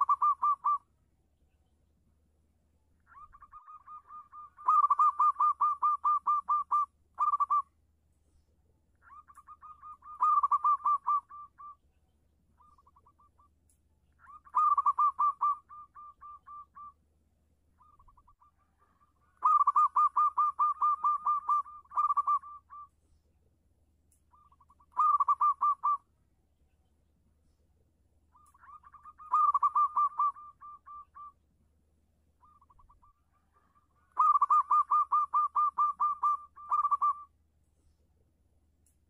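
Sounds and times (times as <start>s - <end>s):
dove cooing: 0.0s - 0.8s, 3.1s - 7.7s, 9.0s - 11.8s, 14.2s - 17.0s, 17.8s - 22.9s, 24.3s - 26.1s, 28.3s - 31.4s, 32.4s - 37.3s.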